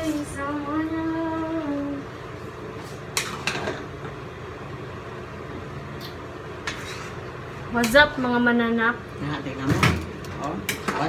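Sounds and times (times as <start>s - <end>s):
low background hum: 0.0s - 11.0s
metal utensil scraping pot: 6.6s - 7.9s.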